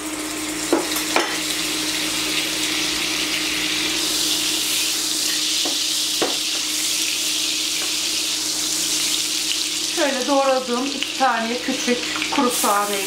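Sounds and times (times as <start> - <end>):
butter sizzling in a pan: 0.0 - 13.0
wooden spoon knocking on a pan: 5.6 - 6.7.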